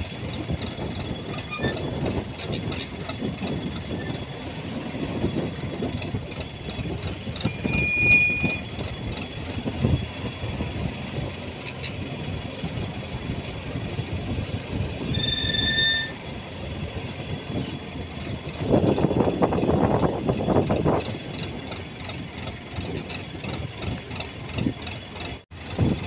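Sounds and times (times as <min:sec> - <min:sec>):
boat engine rumbling: 0:00.0 - 0:26.0
high-pitched squeals: 0:07.4 - 0:08.8, 0:15.0 - 0:16.2.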